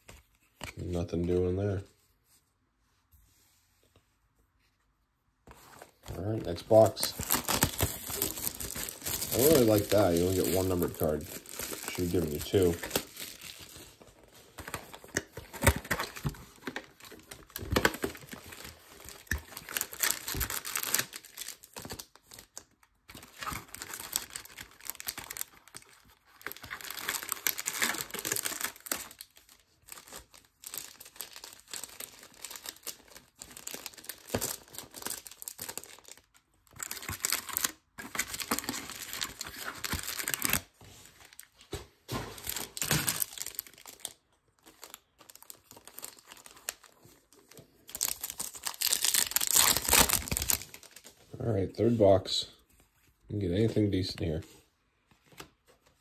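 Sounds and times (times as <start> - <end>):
wrappers crinkling: 6.4 - 14.0, 14.6 - 41.6, 42.4 - 51.2
pack being torn open: 6.7 - 13.5, 47.9 - 51.1.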